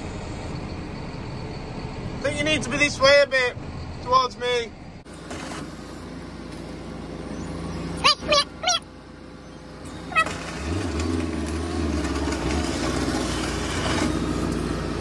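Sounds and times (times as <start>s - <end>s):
loader engine running: 0.0s - 15.0s
sharp squeals: 0.3s - 5.0s, 7.2s - 14.4s.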